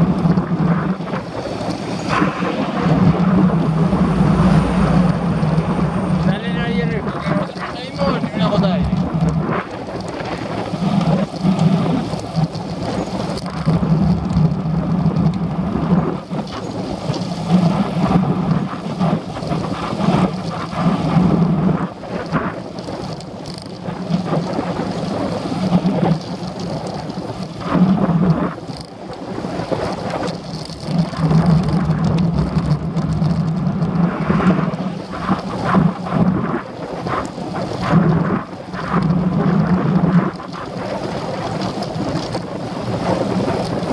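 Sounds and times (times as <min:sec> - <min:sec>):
road rumble: 0:00.0 - 0:43.9
wind buffeting microphone: 0:00.0 - 0:43.9
small rattles: 0:05.1 - 0:15.4, 0:29.8 - 0:34.1.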